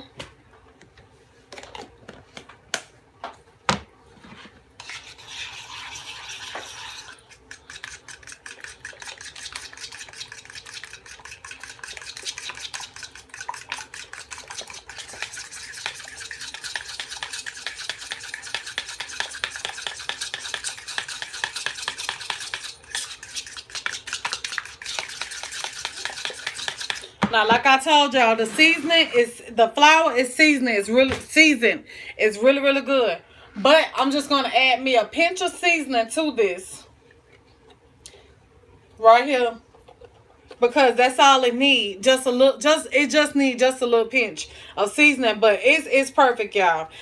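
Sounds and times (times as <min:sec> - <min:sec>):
utensil beating batter in bowl: 0:04.8 - 0:29.3.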